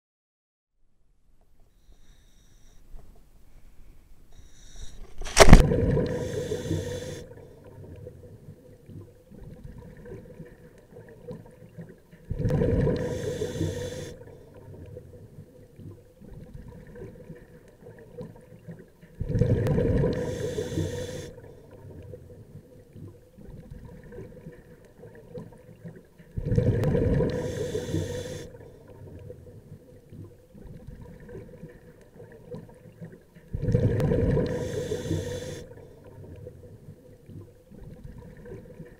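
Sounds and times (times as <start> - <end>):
underwater gurgling: 4.7 - 38.9
loud splash into water: 5.2 - 6.1
underwater exhaled bubbles rushing: 5.3 - 38.9.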